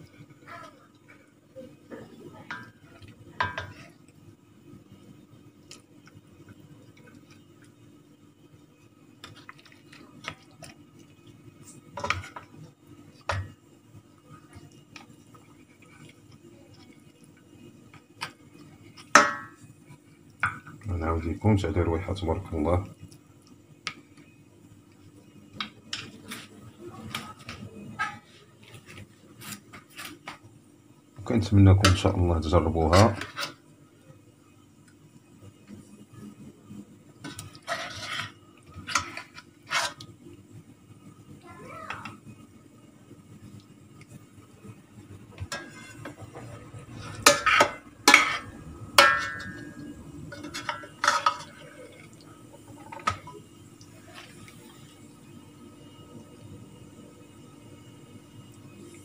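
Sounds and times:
metal spoon clinking on steel pot: 49.0s - 51.6s.

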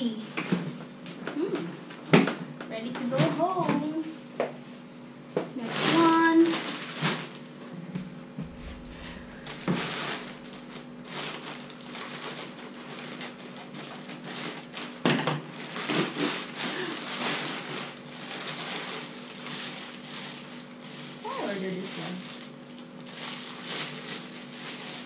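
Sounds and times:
plastic bag rustling and crinkling: 5.6s - 7.6s, 8.4s - 25.0s.

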